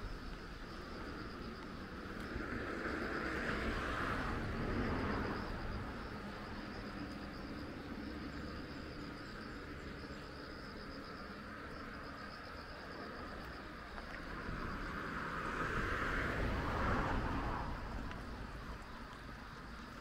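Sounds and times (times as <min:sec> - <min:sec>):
insects chirping in pulsing trill: 0:00.0 - 0:20.0
vehicle passing: 0:02.0 - 0:07.0, 0:14.3 - 0:18.9.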